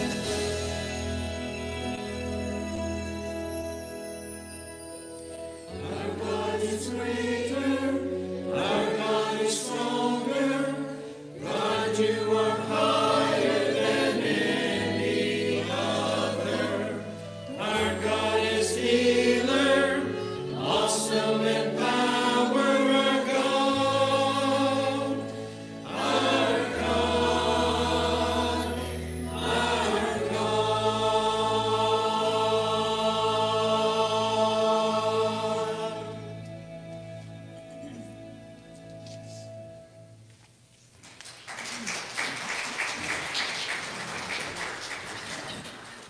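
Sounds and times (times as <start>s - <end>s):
choir singing: 0.0s - 2.7s, 5.6s - 37.0s
instrumental accompaniment: 0.0s - 40.6s.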